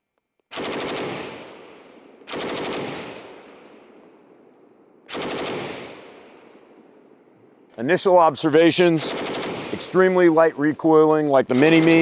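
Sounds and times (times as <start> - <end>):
machine gun bursts: 0.5 - 1.4, 2.3 - 3.2, 5.1 - 5.8, 9.0 - 10.0, 11.5 - 12.0
gunfire echo: 0.5 - 12.0.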